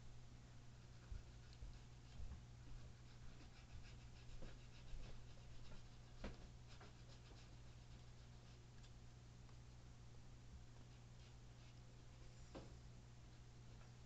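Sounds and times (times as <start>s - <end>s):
low steady hum: 0.0s - 14.0s
faint ticks and rustles: 0.8s - 9.8s.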